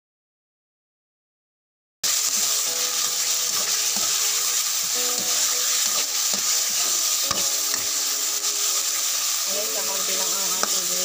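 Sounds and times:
meat sizzling in hot oil: 2.0 - 11.0
metal spatula scraping: 2.1 - 11.0.

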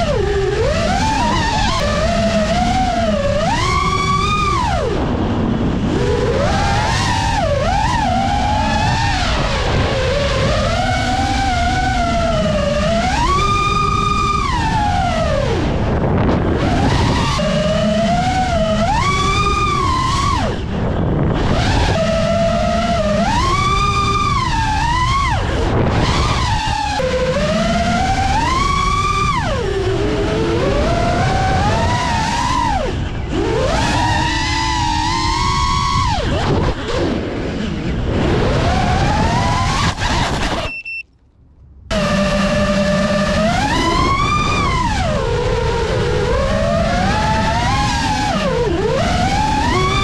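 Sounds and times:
quadcopter motors whining: 0.0 - 41.0, 41.9 - 50.0
steady rushing noise: 0.0 - 50.0
short high beeps: 40.6 - 41.1.

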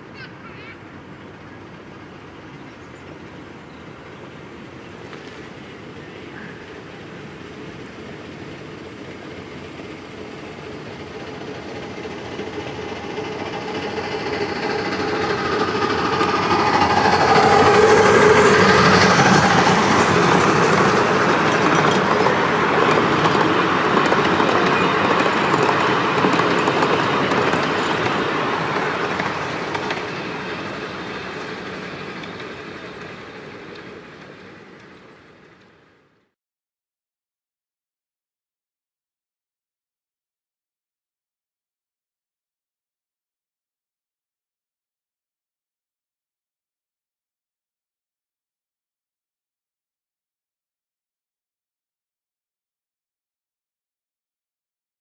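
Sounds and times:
miniature train wheels clattering: 20.3 - 30.2.

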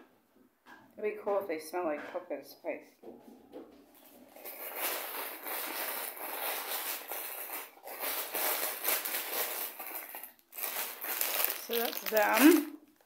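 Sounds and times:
packaging rustling and crinkling: 3.9 - 13.0.

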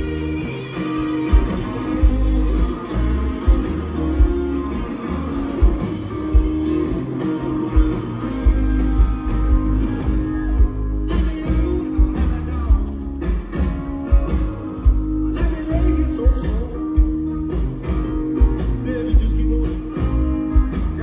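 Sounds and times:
live rock band playing: 0.0 - 21.0
man singing: 10.9 - 13.6, 15.2 - 17.2, 18.6 - 21.0.

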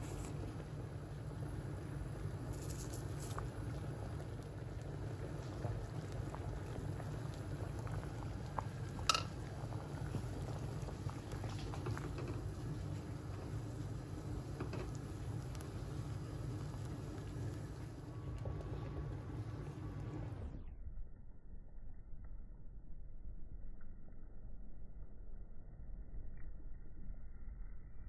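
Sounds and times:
soup simmering and bubbling: 0.0 - 20.4.

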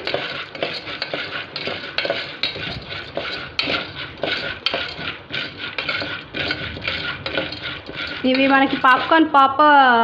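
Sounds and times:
popcorn kernels rattling: 0.0 - 9.4
spoon scraping metal pot: 0.0 - 9.6.

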